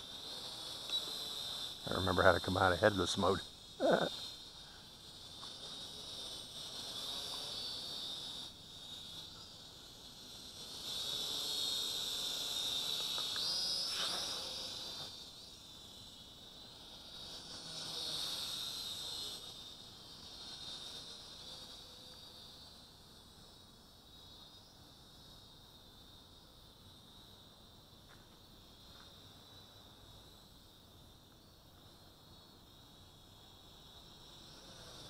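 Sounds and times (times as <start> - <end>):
toy drone propellers whining: 0.0 - 25.6, 32.9 - 35.0.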